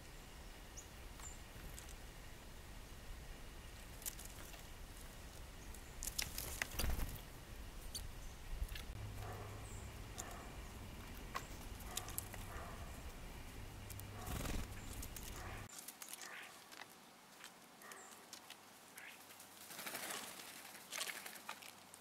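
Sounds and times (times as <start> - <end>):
animals clicking and scrabbling: 3.9 - 4.7, 8.7 - 22.0.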